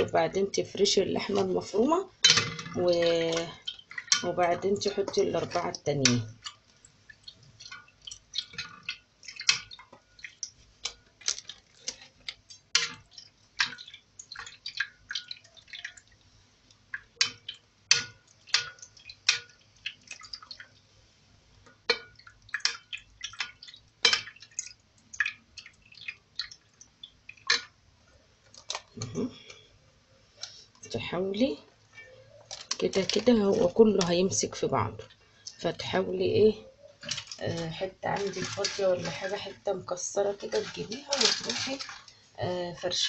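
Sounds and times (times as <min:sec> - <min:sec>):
pastry sheets crackling: 0:00.0 - 0:20.8, 0:30.3 - 0:43.0
liquid dripping: 0:00.0 - 0:20.9, 0:21.6 - 0:27.8, 0:30.4 - 0:43.0.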